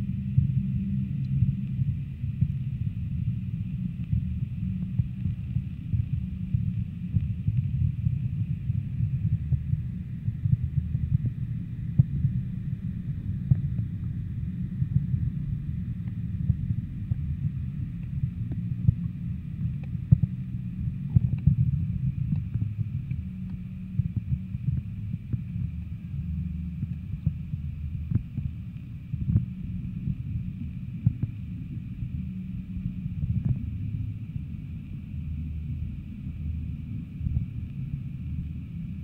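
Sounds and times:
muffled underwater rumble: 0:00.0 - 0:39.0.

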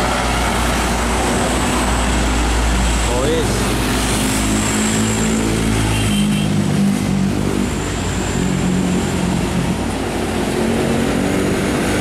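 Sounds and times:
diesel truck engines passing: 0:00.0 - 0:12.0
road and traffic noise: 0:00.0 - 0:12.0.

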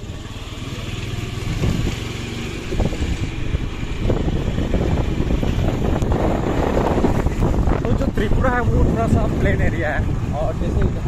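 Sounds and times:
motorcycle engine rumble: 0:00.0 - 0:11.0
wind buffeting microphone: 0:01.4 - 0:11.0.

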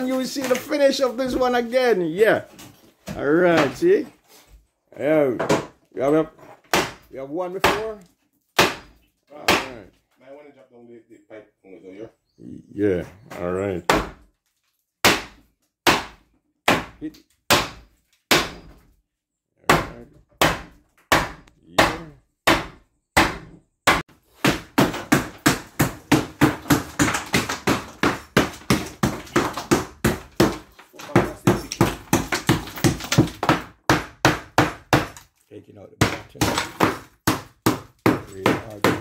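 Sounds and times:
hammer blows on wooden framing: 0:05.1 - 0:10.0, 0:13.0 - 0:14.3, 0:15.0 - 0:18.8, 0:19.6 - 0:35.3, 0:35.9 - 0:39.0
rapid hammering chipping tile: 0:21.8 - 0:35.2, 0:36.0 - 0:39.0.

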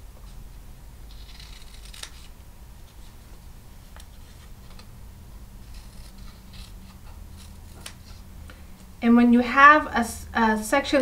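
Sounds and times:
scissors snipping fabric: 0:01.1 - 0:02.3, 0:05.6 - 0:08.1.

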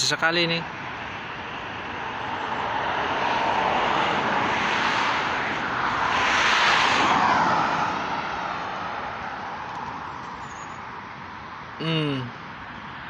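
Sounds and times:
vehicle passing by: 0:01.1 - 0:10.4.

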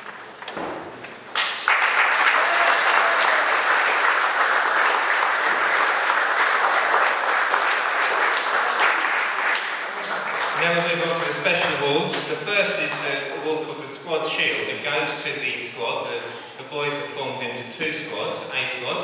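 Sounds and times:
audience applauding: 0:01.3 - 0:11.8.

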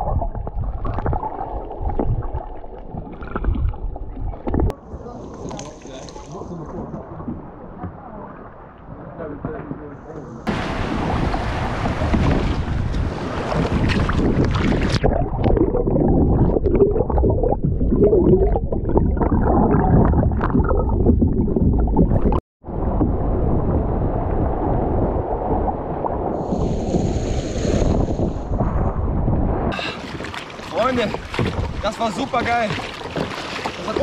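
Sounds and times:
water splashing around kayak: 0:00.0 - 0:34.0
wind buffeting microphone: 0:09.1 - 0:34.0.

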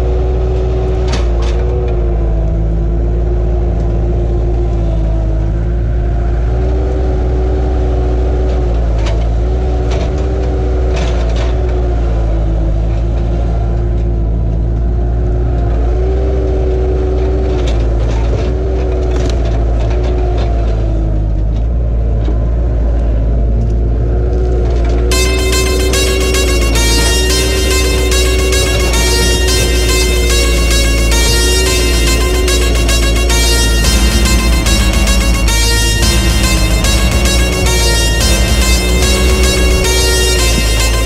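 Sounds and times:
diesel engine running under load: 0:00.0 - 0:41.0.

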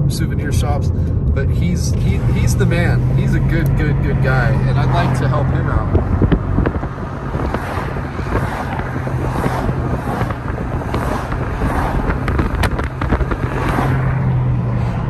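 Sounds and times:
car engine drone: 0:00.0 - 0:15.0
tyre and wind noise: 0:05.0 - 0:15.0.

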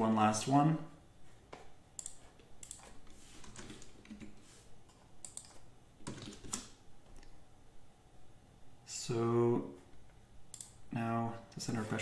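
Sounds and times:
computer keyboard typing: 0:02.0 - 0:07.3.

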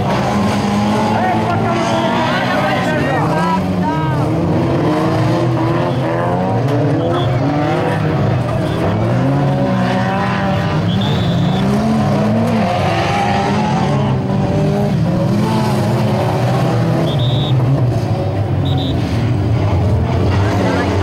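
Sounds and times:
racing car engines revving: 0:00.0 - 0:21.0.

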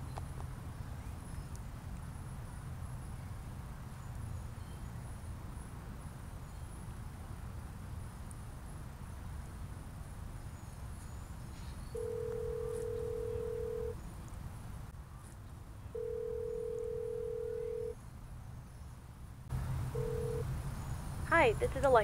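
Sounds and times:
telephone ringback tone: 0:12.0 - 0:14.0, 0:16.0 - 0:18.0, 0:20.0 - 0:20.5.

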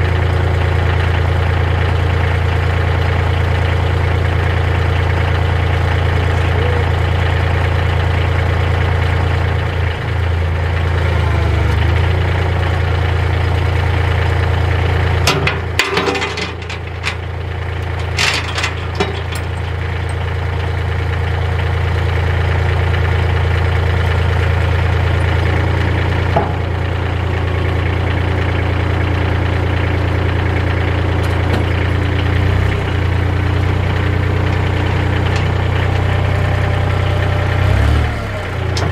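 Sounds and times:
tractor engine idling: 0:00.0 - 0:38.9
knocks and clicks: 0:17.8 - 0:20.2.

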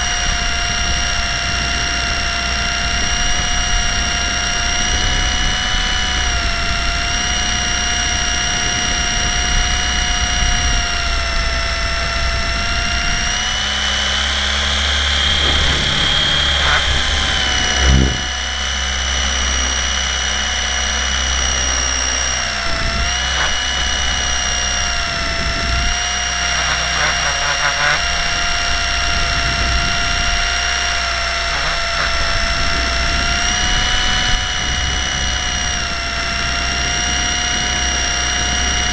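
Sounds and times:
rc helicopter motor whining: 0:00.0 - 0:38.9
short low thump: 0:15.3 - 0:18.4.

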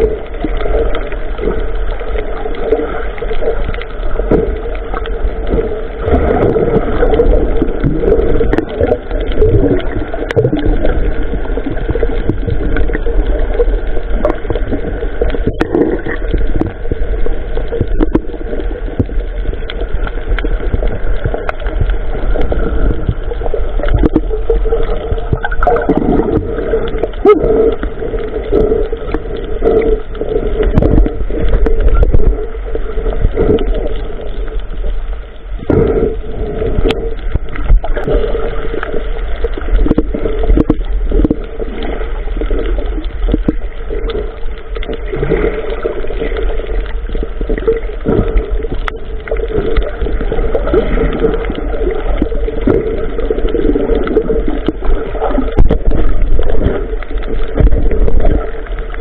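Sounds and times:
water gurgling and sloshing: 0:00.0 - 0:59.0
small water splashes: 0:36.9 - 0:59.0.

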